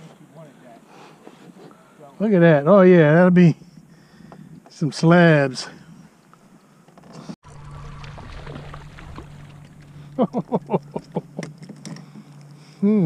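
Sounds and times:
steady low hum: 5.7 - 13.0
water washing along kayak hull: 7.4 - 11.7.

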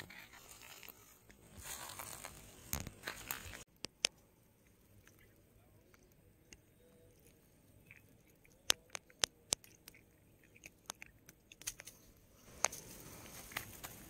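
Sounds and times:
handling clicks and crackles: 0.0 - 14.0.

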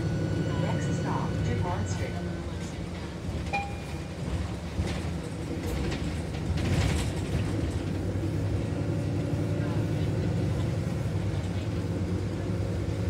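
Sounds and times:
bus engine and road rumble: 0.0 - 13.0
rattling of bus fittings: 2.9 - 8.6.

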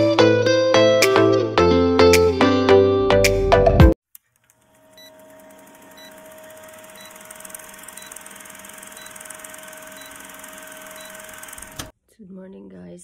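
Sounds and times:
film projector clatter: 4.3 - 11.9.

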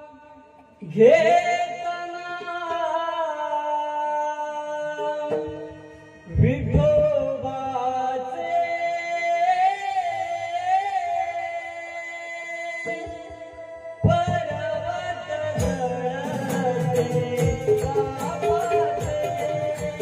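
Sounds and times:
man singing long held notes: 0.0 - 20.0
instrumental accompaniment: 12.8 - 20.0.

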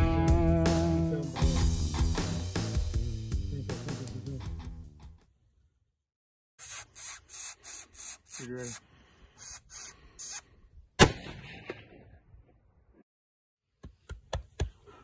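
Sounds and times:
rifle shot echoing: 11.0 - 12.2.

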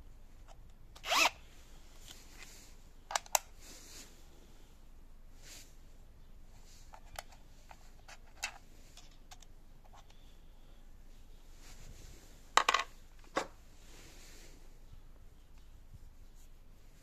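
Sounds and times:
plastic parts clicking: 3.1 - 3.5, 6.9 - 10.2.

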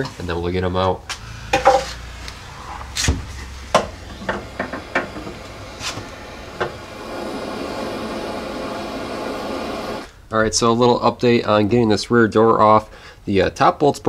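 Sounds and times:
gas torch flame hissing: 1.0 - 10.1.

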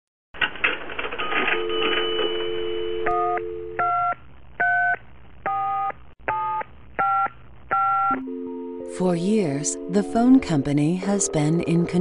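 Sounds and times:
telephone dial tone: 1.2 - 3.9.

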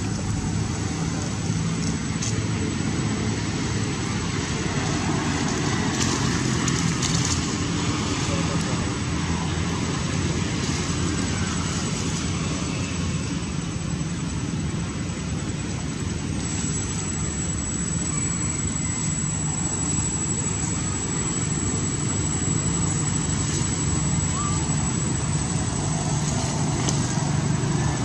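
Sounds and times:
low rumbling noise with hiss: 0.0 - 28.0
thin high steady tone: 7.6 - 28.0.

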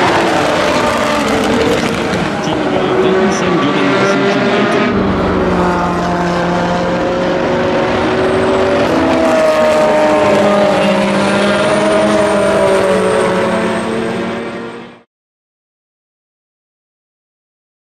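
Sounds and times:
race car engine passing: 0.0 - 15.0.

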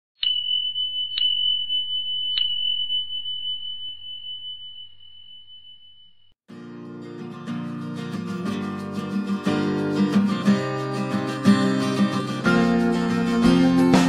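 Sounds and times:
high chime ringing: 0.2 - 6.4
acoustic guitar music: 6.5 - 14.0.

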